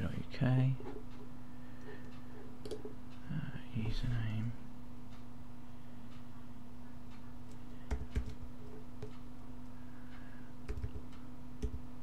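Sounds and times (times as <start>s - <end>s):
steady low hum: 0.0s - 12.0s
keyboard keystrokes: 7.9s - 9.2s.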